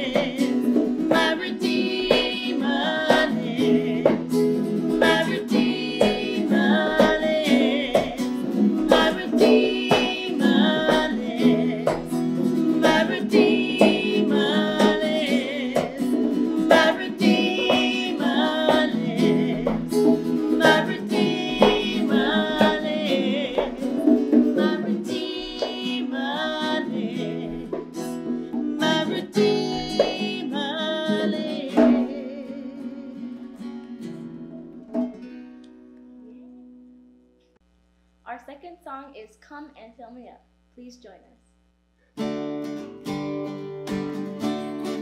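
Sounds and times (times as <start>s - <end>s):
conga drums: 0.0s - 32.4s
women singing: 0.0s - 33.7s
strummed guitars: 0.0s - 37.4s, 42.2s - 45.0s.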